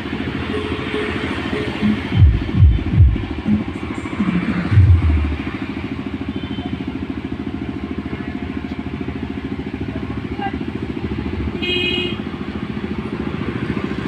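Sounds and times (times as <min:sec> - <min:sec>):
deep booms: 0:02.1 - 0:03.4.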